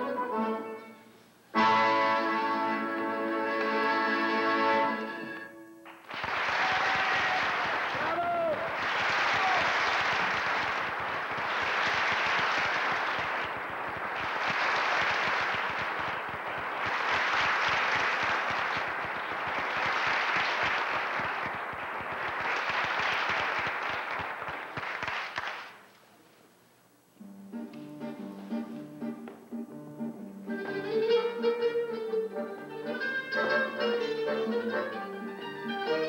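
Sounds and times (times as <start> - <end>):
audience applauding: 5.8 - 25.8.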